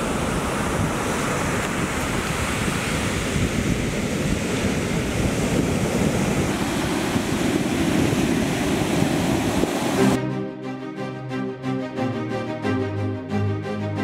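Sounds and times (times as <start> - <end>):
sea surf breaking on a beach: 0.0 - 10.2
wind buffeting microphone: 0.0 - 10.2
music: 10.0 - 14.0.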